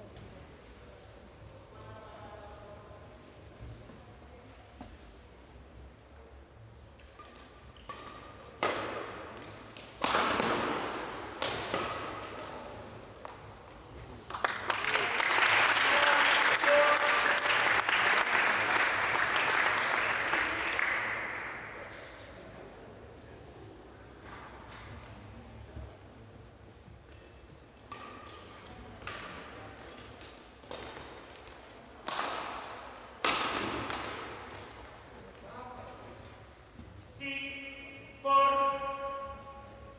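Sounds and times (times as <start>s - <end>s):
racket hitting shuttlecock: 7.0s - 13.5s, 27.8s - 34.9s.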